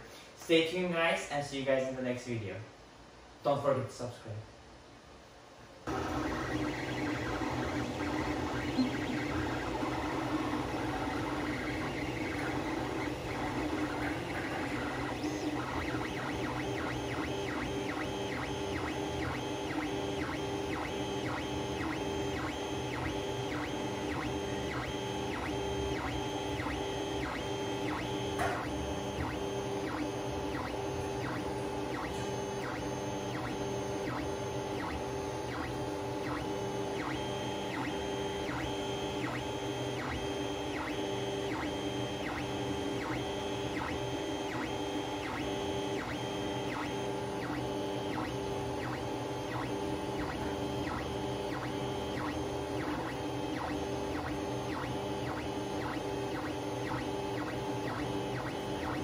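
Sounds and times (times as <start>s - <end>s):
steady hum: 0.0s - 59.0s
stepper motors whining: 5.9s - 59.0s.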